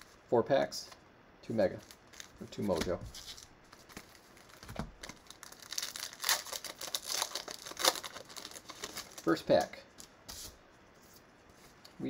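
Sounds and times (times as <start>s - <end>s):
wrapper tearing and crinkling: 1.8s - 9.4s.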